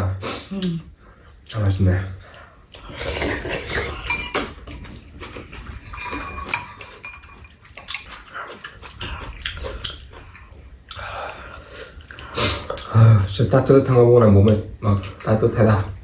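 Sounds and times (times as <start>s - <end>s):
people slurping and chewing: 2.2s - 16.0s
spoons clinking on ceramic bowls: 3.4s - 4.6s, 5.6s - 8.2s.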